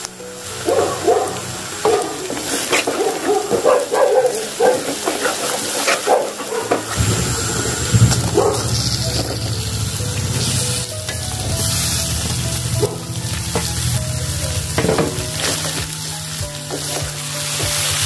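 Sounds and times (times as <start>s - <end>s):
food frying in oil: 0.0s - 18.0s
dog barking: 0.6s - 6.9s, 8.2s - 8.9s.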